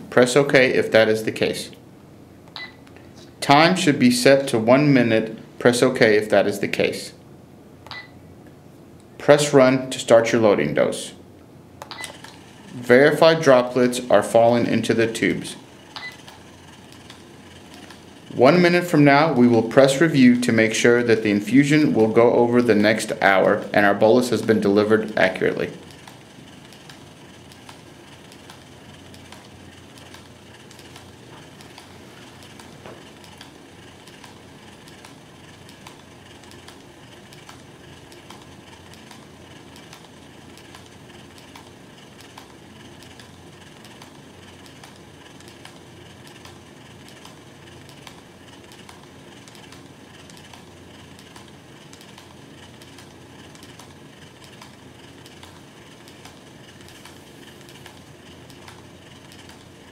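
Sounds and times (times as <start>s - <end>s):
rapid small clicks: 11.8s - 12.8s, 13.5s - 20.0s, 20.6s - 59.9s
infusion pump motor humming: 11.8s - 59.9s.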